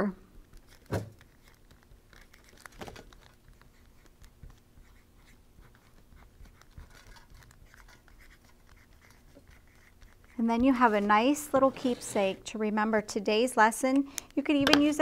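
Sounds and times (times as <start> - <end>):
marker scratching on foil: 0.6 - 12.4.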